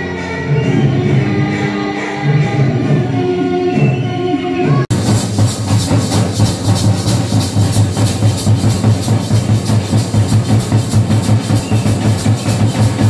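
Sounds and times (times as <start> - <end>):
barrel drums beaten: 4.9 - 13.0.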